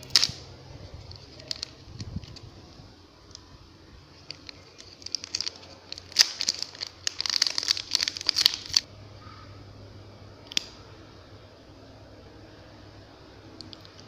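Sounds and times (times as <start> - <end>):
plastic wrapper crinkling: 0.0 - 2.7, 4.1 - 8.9.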